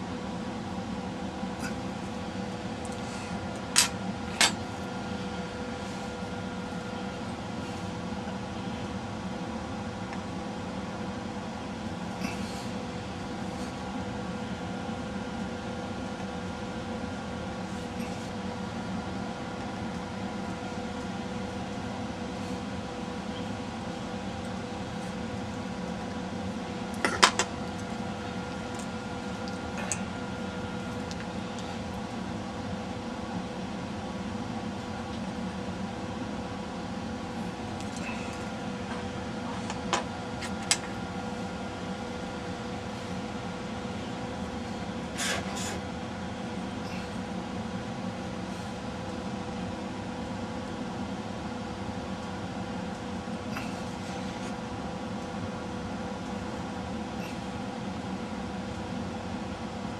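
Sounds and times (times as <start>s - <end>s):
steady hum with constant tones: 0.0s - 59.9s.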